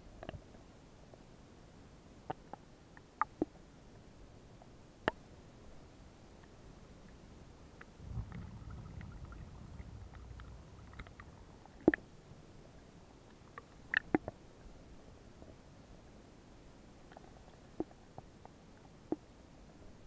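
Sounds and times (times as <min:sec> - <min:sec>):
muffled underwater sloshing rumble: 0:07.9 - 0:12.5.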